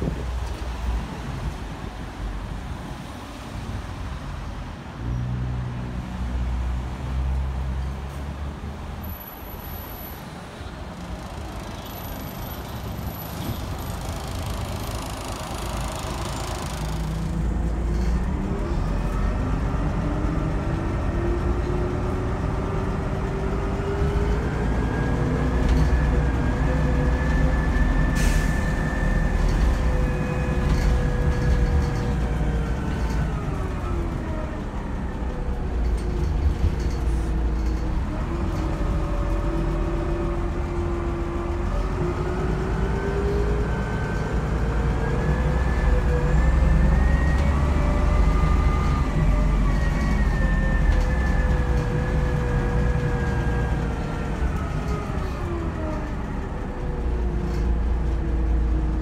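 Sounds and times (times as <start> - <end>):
diesel engine drone: 0.0 - 59.0.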